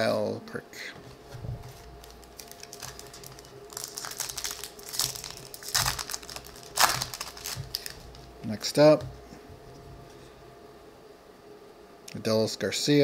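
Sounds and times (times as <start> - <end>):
foil wrapper crinkling: 1.6 - 9.0.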